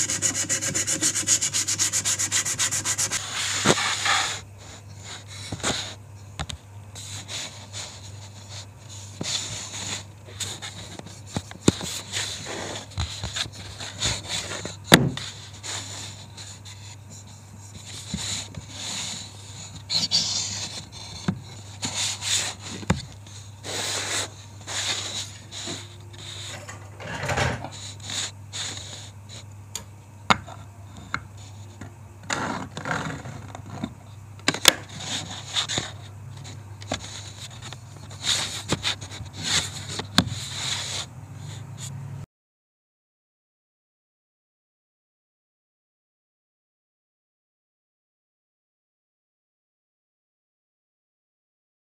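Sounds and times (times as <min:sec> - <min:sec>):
wood scraping against wood: 0:00.0 - 0:04.4
low steady hum: 0:00.0 - 0:42.2.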